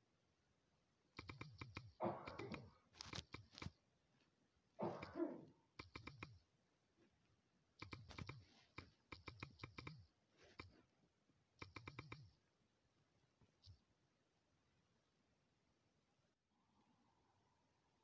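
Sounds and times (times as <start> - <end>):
smartphone keyboard typing clicks: 1.2 - 3.8, 5.8 - 6.4, 7.8 - 10.8, 11.6 - 12.4.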